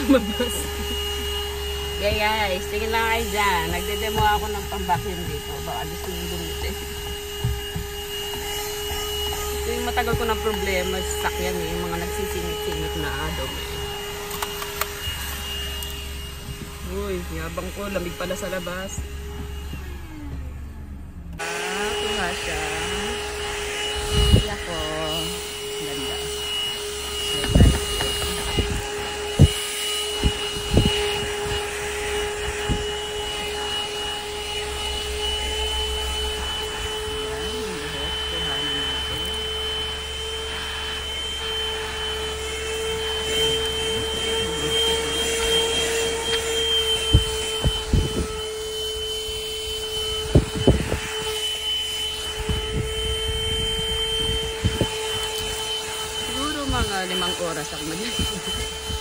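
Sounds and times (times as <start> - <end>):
vacuum cleaner motor whining: 0.0 - 59.0
vacuum knocking against seat: 3.5 - 11.0, 26.5 - 33.8, 42.4 - 48.4.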